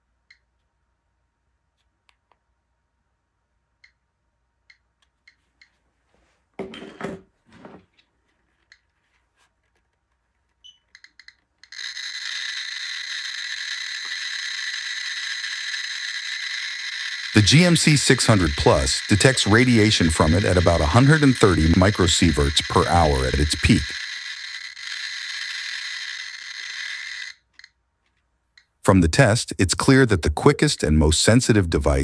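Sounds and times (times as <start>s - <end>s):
geiger counter clicking: 10.6s - 27.8s.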